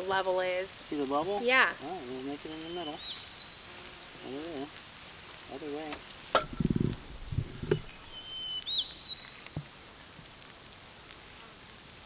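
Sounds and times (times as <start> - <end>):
bird call: 6.4 - 9.8.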